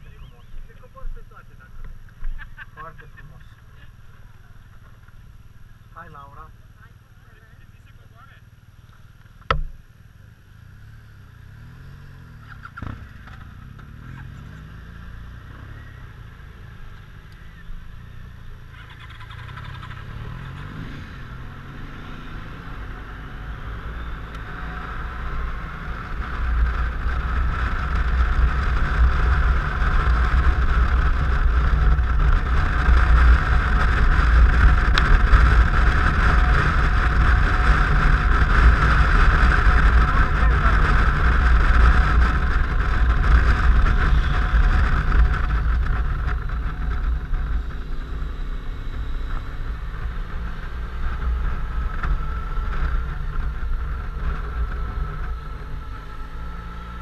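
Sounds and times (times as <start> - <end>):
scooter engine drone: 0.0 - 57.0
wind rumble on microphone: 22.4 - 57.0.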